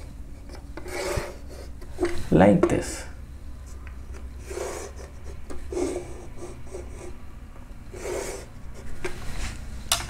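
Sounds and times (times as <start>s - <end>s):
chalk scraping on a chalkboard: 0.8s - 1.8s, 4.4s - 7.2s, 7.9s - 9.6s.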